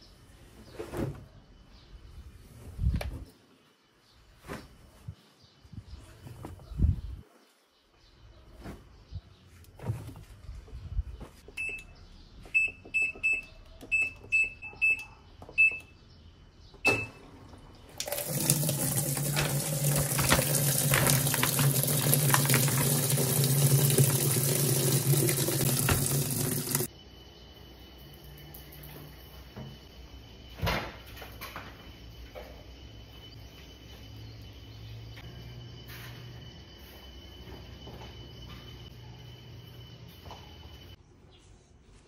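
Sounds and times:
washing machine low hum: 16.9 - 26.9
water rushing into tub: 18.0 - 26.9.

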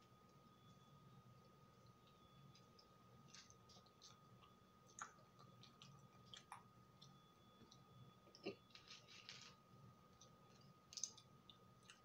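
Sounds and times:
faint steady high tone: 0.0 - 12.0
chewing with wet mouth clicks: 1.8 - 8.6, 10.2 - 12.0.

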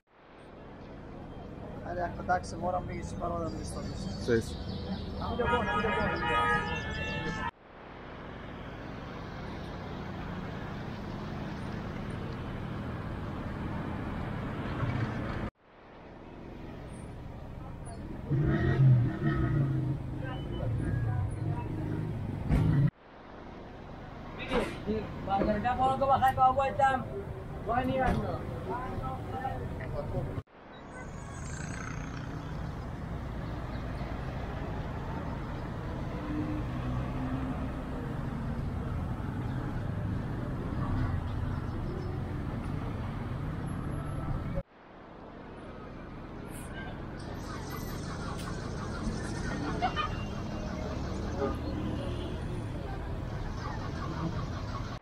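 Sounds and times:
traffic rumble: 0.1 - 55.0
cars driving past close by: 31.2 - 44.4.

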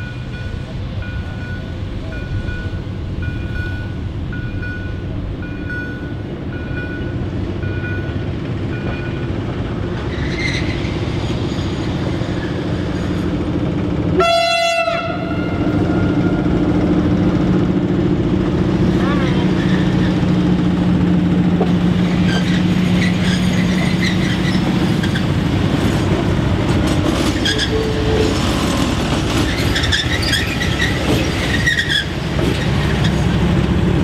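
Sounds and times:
diesel locomotive engine: 0.0 - 34.0
locomotive horn blast: 14.1 - 16.6.

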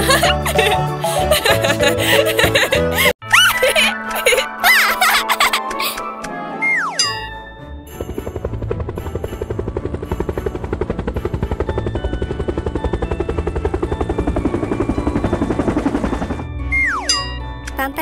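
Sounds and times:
cartoon propeller plane engine chugging: 7.0 - 17.1.

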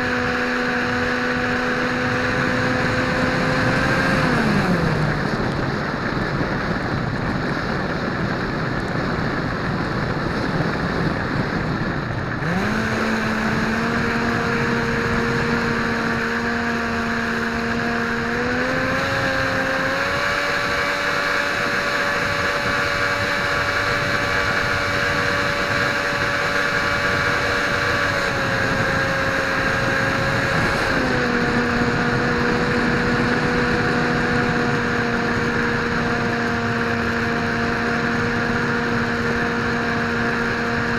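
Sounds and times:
wind rush: 0.0 - 40.9
model plane motor humming: 12.3 - 40.9.

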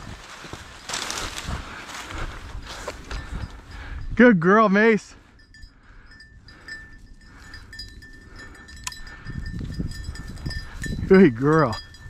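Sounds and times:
footsteps: 0.0 - 4.0
rustling through dry grass: 0.0 - 4.0
small bell jingling: 3.1 - 12.0.

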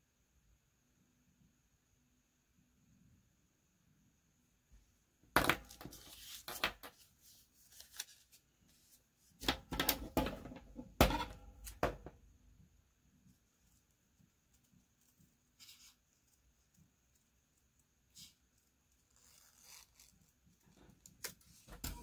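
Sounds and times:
paper crackling and rustling: 5.8 - 9.0.

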